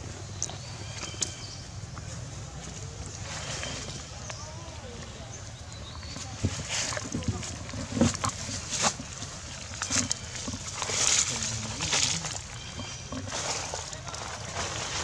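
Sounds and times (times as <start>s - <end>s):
dry leaves rustling and crackling: 6.2s - 15.0s.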